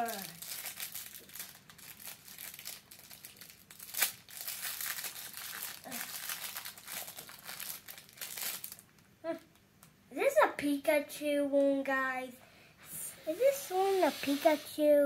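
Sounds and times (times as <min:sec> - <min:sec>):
plastic wrapper crinkling: 0:00.0 - 0:09.9
plastic wrapper snap: 0:00.0 - 0:10.0.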